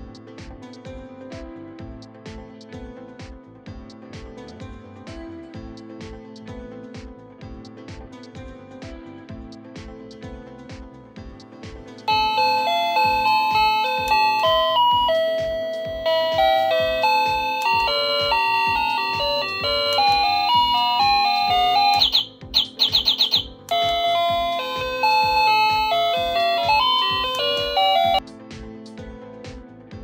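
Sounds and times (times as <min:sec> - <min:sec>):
background tune with steady beat: 0:00.0 - 0:30.0
electronic doorbell chime melody: 0:12.1 - 0:28.2
bird-like electronic chirps: 0:18.8 - 0:28.2.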